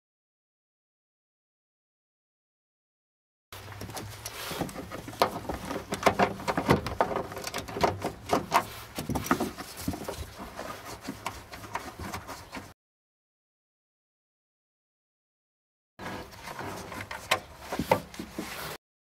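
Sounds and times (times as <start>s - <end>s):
carpet rustling and scraping: 3.6s - 12.8s, 16.0s - 18.8s.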